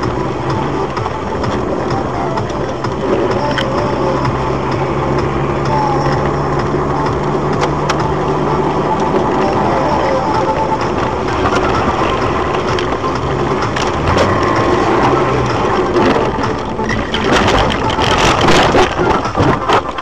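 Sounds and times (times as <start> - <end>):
engine and road noise: 0.0 - 20.0
crunching clattering knocks: 10.8 - 20.0.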